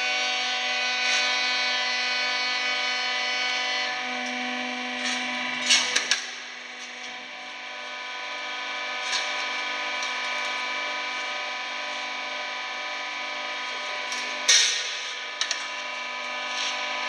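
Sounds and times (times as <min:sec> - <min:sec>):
hydraulic machine humming: 0:03.4 - 0:12.2.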